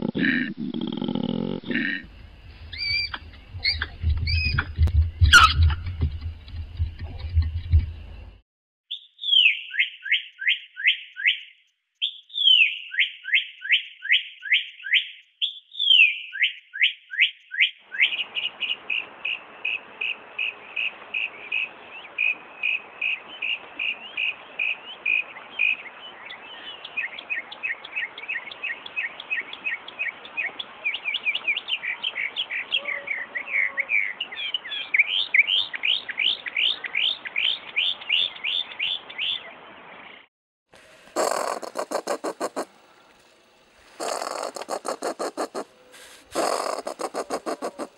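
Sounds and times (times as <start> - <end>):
background hiss: 0.3 - 3.6, 40.8 - 47.9
mockingbird singing: 2.7 - 5.6, 8.9 - 18.2, 41.2 - 42.7, 44.0 - 47.9.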